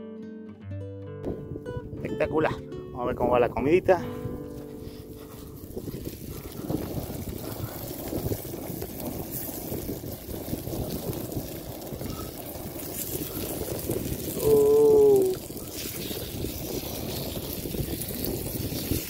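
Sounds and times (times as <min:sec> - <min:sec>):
meat sizzling on hot stone: 0:04.8 - 0:19.0.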